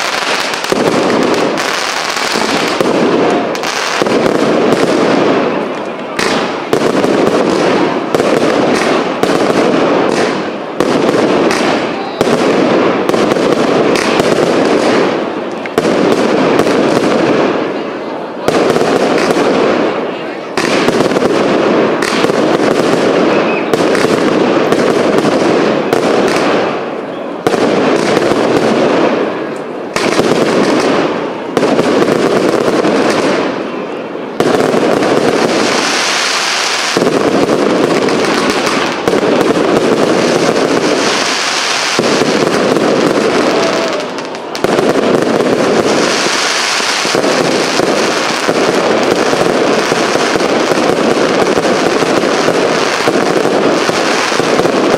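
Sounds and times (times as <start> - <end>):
firework launches and bursts: 0.0 - 17.8.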